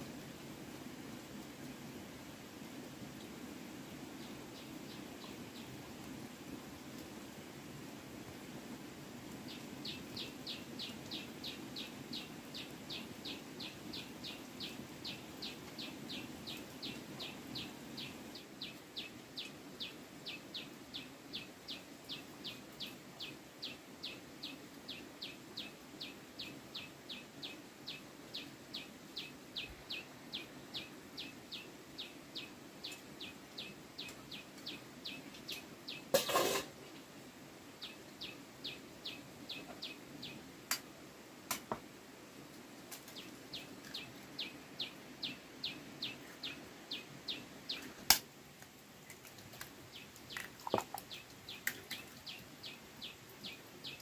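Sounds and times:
bird chirping: 37.8s - 40.4s, 43.1s - 48.0s.

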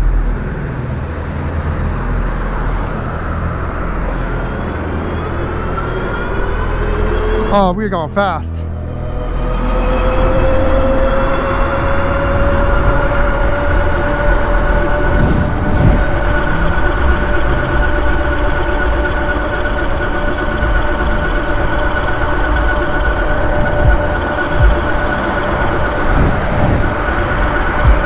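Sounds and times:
electric motor whine: 0.0s - 7.5s, 8.7s - 28.0s
wind rumble on microphone: 8.8s - 28.0s.

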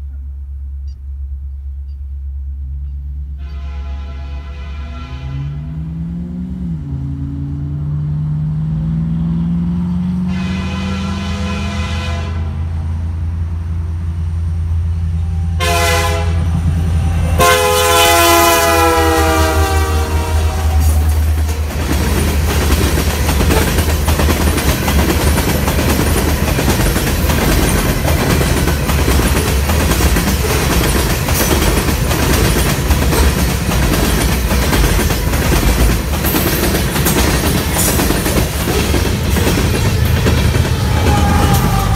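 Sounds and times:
diesel locomotive engine: 0.0s - 41.9s
train horn blasts: 3.3s - 6.0s, 10.0s - 13.0s, 15.2s - 21.4s, 39.8s - 41.9s
train wheels clattering on rails: 17.4s - 41.9s.

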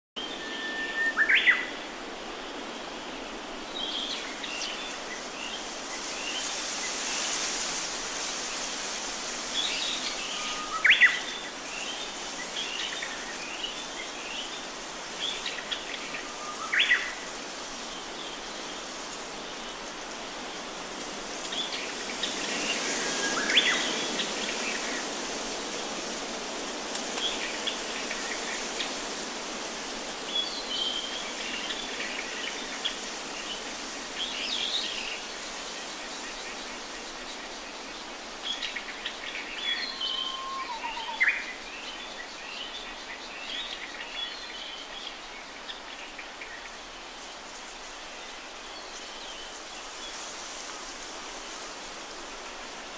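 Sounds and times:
background hiss: 0.2s - 52.9s
wild birds chirping: 27.1s - 52.9s.

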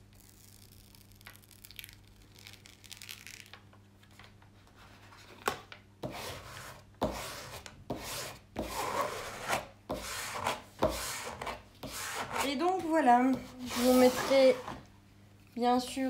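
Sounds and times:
plastic tool rubbing on paper: 6.2s - 14.8s.

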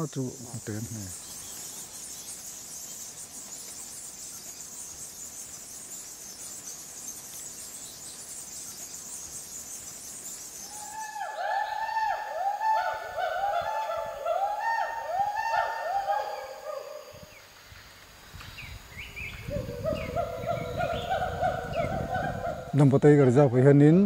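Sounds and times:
swooping calls: 0.0s - 17.5s, 18.6s - 24.0s
forest insects chorus: 0.0s - 24.0s.

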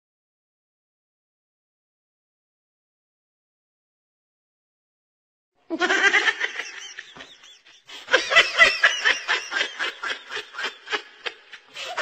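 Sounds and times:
people laughing: 5.7s - 12.0s.

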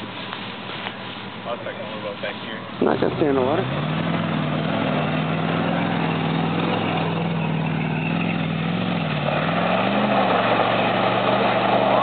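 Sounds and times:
truck engine running: 0.0s - 12.0s.

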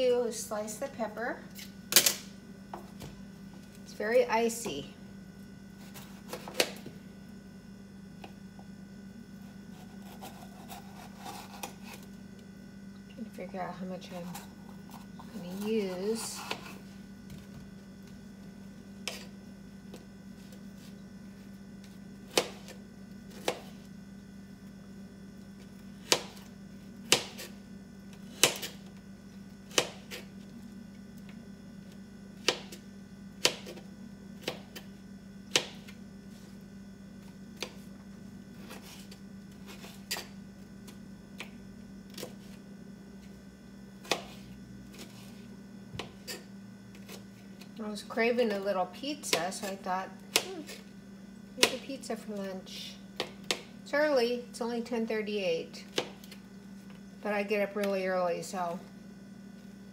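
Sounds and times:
steady low hum: 0.0s - 59.9s
knife chopping on plastic board: 5.9s - 6.9s, 22.3s - 23.7s, 27.1s - 27.5s, 28.3s - 28.8s, 32.4s - 32.8s, 33.4s - 33.8s, 35.5s - 35.9s, 51.6s - 51.9s, 53.2s - 53.7s.

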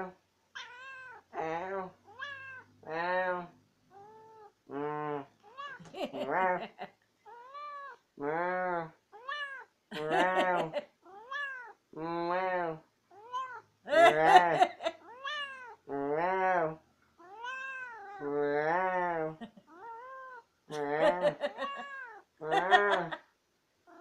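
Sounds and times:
cat meowing: 0.6s - 1.3s, 2.1s - 2.7s, 5.4s - 6.4s, 7.3s - 8.0s, 9.2s - 9.7s, 11.1s - 11.8s, 13.1s - 13.7s, 15.0s - 15.8s, 17.2s - 18.3s, 19.7s - 20.5s, 21.4s - 22.2s.

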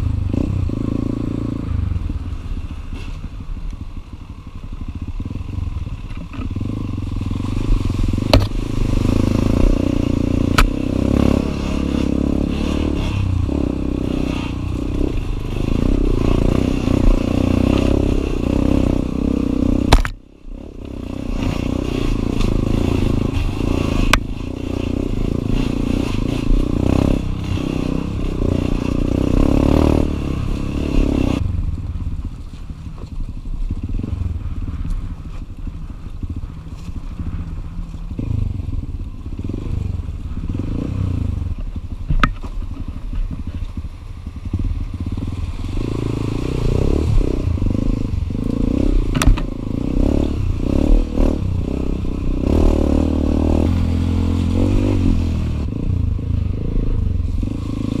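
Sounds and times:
dirt bike engine revving: 4.8s - 31.5s, 44.4s - 58.0s
sharp knocks and clatter: 49.1s - 49.5s.

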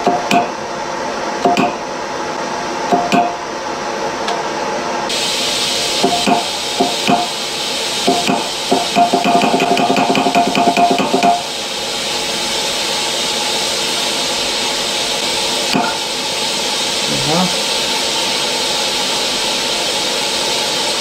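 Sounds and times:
steam hissing from valve: 5.1s - 21.0s.

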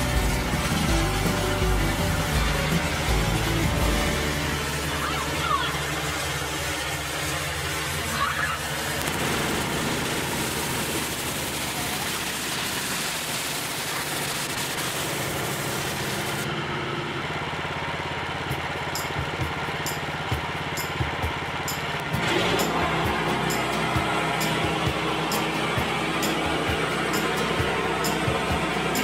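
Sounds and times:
water spray hissing on wood: 0.0s - 16.4s
pressure washer running: 0.0s - 29.0s.

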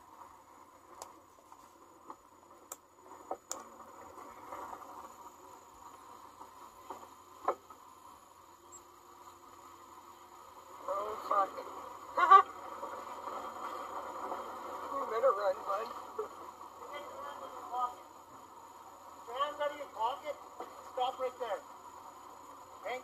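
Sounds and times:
faint steady hiss: 0.0s - 23.0s.

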